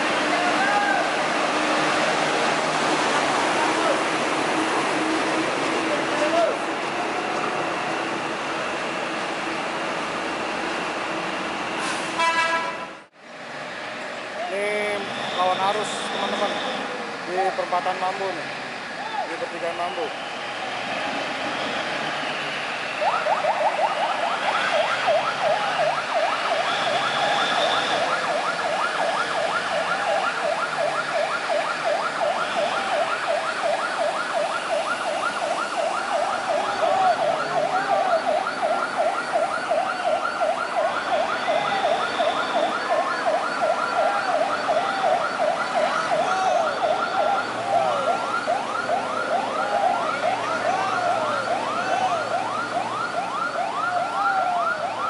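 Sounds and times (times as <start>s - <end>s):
siren yelping: 0.0s - 2.2s, 22.8s - 55.0s.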